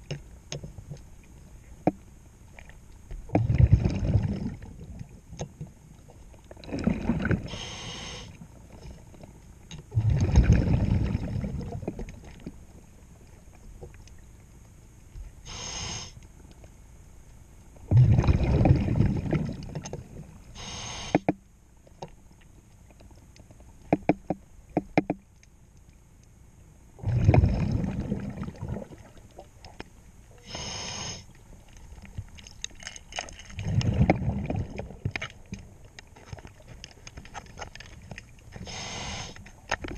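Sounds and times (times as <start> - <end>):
rumbling exhaust bubbles: 3.3 - 5.1, 6.6 - 7.6, 9.9 - 12.2, 17.8 - 20.4, 27.0 - 29.2, 33.6 - 35.2
regulator hiss: 7.5 - 8.4, 15.4 - 16.2, 20.5 - 21.3, 30.3 - 31.4, 38.6 - 39.5.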